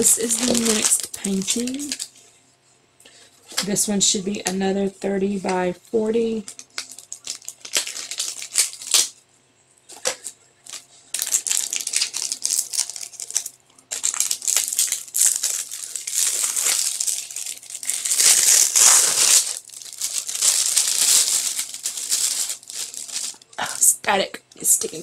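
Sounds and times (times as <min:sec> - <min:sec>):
plastic wrapping crinkling: 0:00.0 - 0:02.2, 0:06.4 - 0:09.2, 0:09.9 - 0:23.9.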